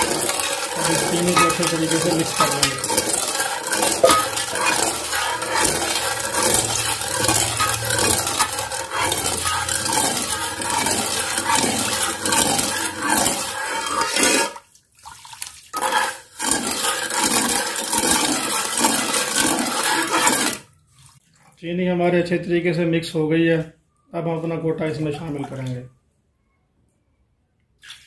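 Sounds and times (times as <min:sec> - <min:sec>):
metal ladle against pot: 0:00.0 - 0:14.5
liquid swishing: 0:00.0 - 0:21.6, 0:24.8 - 0:25.9.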